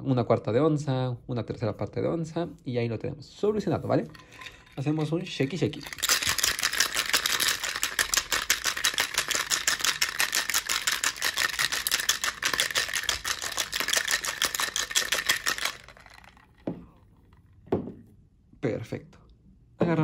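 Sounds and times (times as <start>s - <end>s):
ice rattling in cocktail shaker: 3.9s - 17.0s
shaker knock on wooden table: 17.7s - 18.0s.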